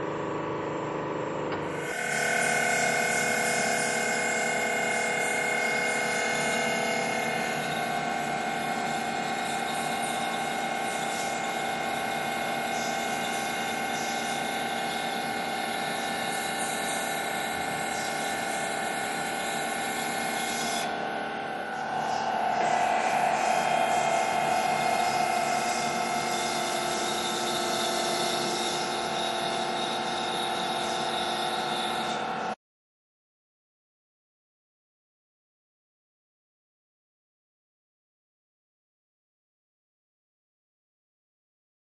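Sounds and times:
tube bender motor whine: 0.0s - 32.6s.

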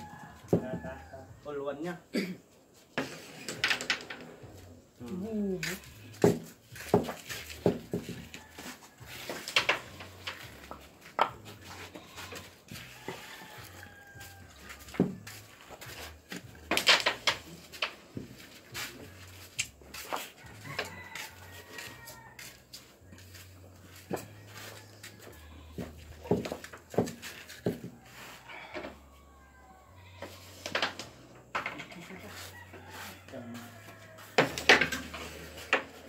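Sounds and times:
rooster crowing faintly: 11.7s - 16.1s, 18.7s - 25.7s, 27.2s - 36.0s.

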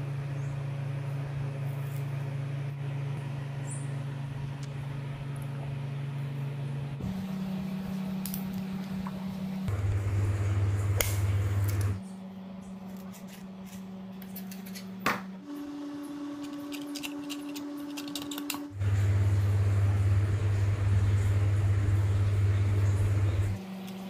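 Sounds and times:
electric motors whirring: 15.4s - 24.0s.

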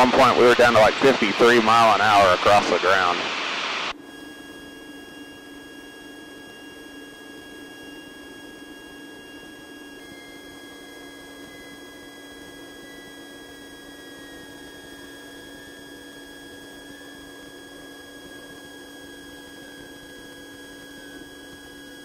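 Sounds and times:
airplane engine droning: 0.0s - 16.6s.

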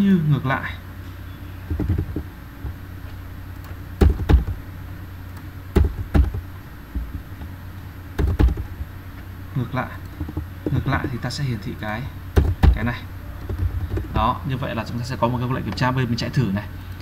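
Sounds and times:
steady low hum: 0.0s - 17.0s
keyboard keystrokes: 1.7s - 2.8s, 3.6s - 4.6s, 5.4s - 7.5s, 8.2s - 8.9s, 12.4s - 14.3s.

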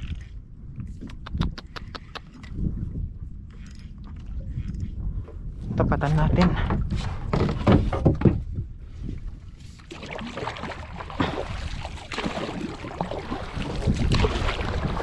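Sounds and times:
wind rumbling on microphone: 0.0s - 15.0s
moving water: 8.9s - 15.0s.

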